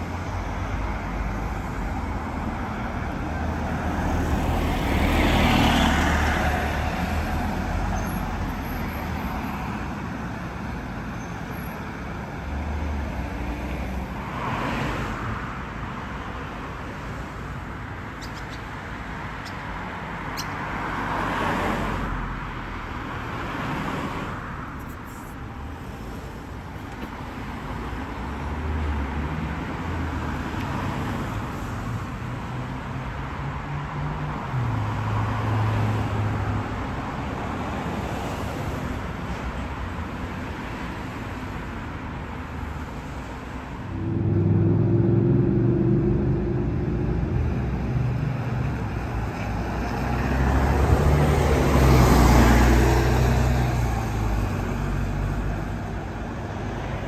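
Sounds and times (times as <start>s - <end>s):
cars and coach driving past: 0.0s - 57.0s
low engine hum: 43.8s - 51.6s.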